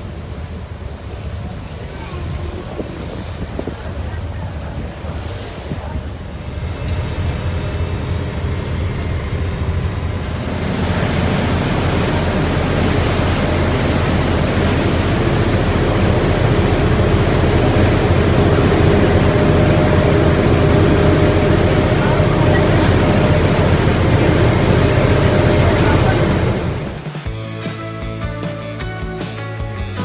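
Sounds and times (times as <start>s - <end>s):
wind on microphone: 0.0s - 6.8s
boat engine rumble: 0.0s - 27.8s
rushing boat wash: 0.0s - 27.8s.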